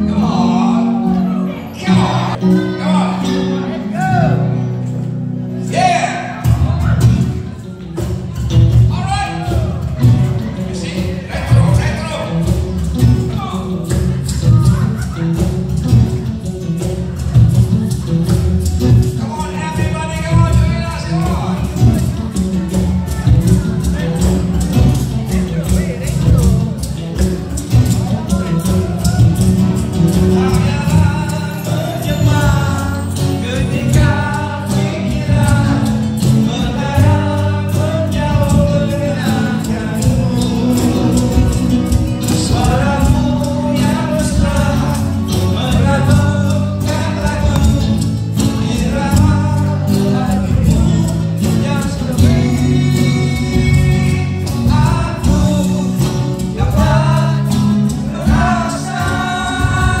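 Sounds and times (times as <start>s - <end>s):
bass: 0.0s - 60.0s
person singing: 19.0s - 60.0s.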